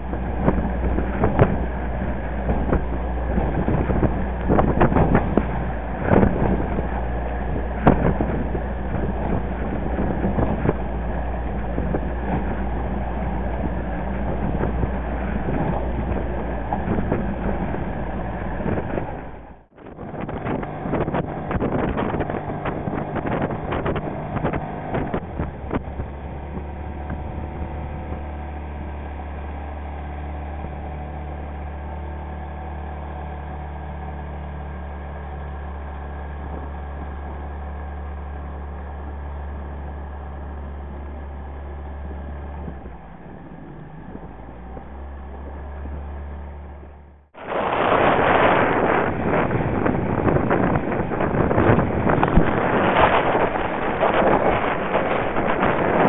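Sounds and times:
motorboat engine running: 0.0 - 56.0
wind buffeting microphone: 0.0 - 56.0
water splashing: 42.7 - 56.0.

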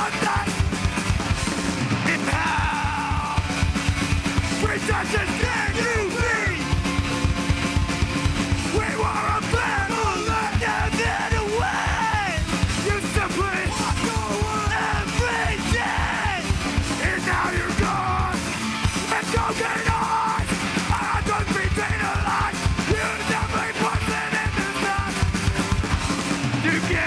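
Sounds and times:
bass guitar: 0.0 - 27.0
distorted electric guitars: 0.0 - 27.0
fast pounding drumbeat: 0.0 - 27.0
person shouting into microphone: 2.1 - 3.5, 4.6 - 6.6, 8.7 - 18.4.

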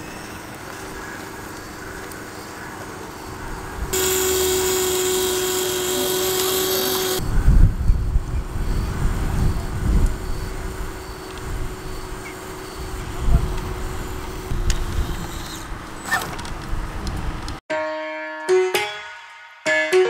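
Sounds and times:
electric winch motor whining: 3.9 - 7.2, 9.4 - 16.4.

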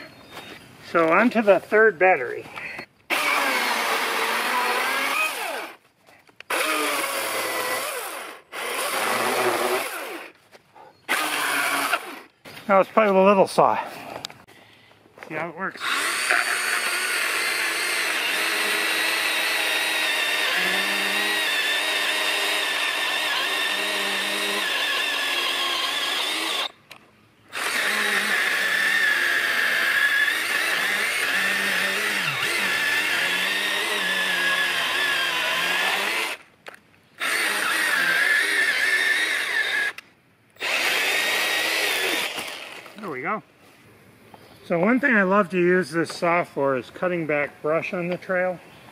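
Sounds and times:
chainsaw cutting log: 3.1 - 5.8, 6.4 - 10.4, 11.1 - 12.3, 15.7 - 26.8, 27.5 - 36.5, 37.2 - 40.0, 40.6 - 43.1.

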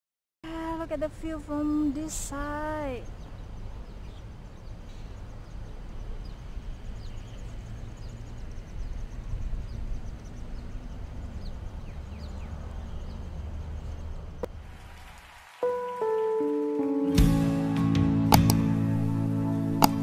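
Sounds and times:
wind on microphone: 5.5 - 13.2
sharp click: 18.3 - 18.6, 19.8 - 20.0.

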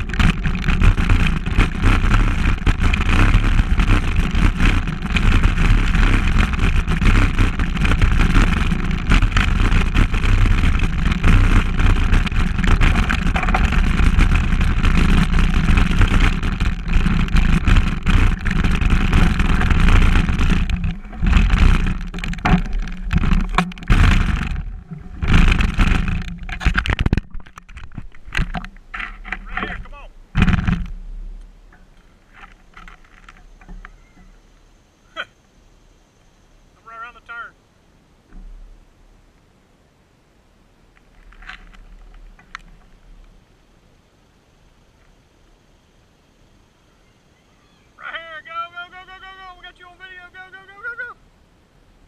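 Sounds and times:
wind buffeting microphone: 0.0 - 31.0
bike rattling: 0.0 - 34.5, 41.0 - 43.4
bike tyres on dirt trail: 0.0 - 37.5, 40.8 - 51.3.

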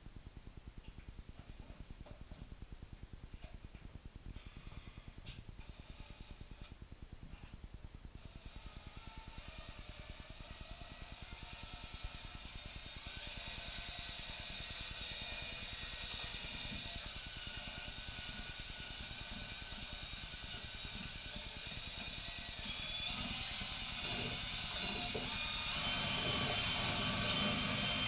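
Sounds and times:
drill motor whirring: 8.2 - 28.0.

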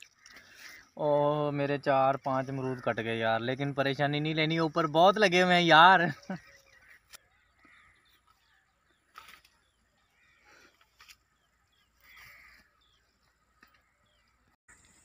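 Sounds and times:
small bird calls: 0.0 - 1.6, 4.6 - 15.0.

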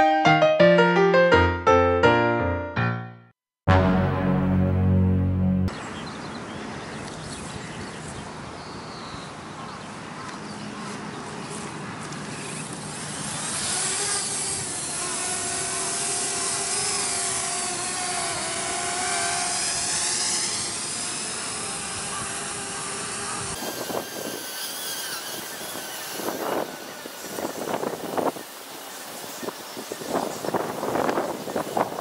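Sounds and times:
drone rotors whining: 12.0 - 31.6.

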